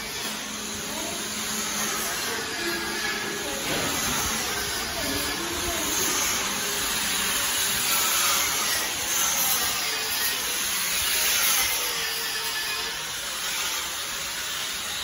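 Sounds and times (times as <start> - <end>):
machinery hissing: 0.0 - 11.0
faint distant voices: 0.3 - 9.8.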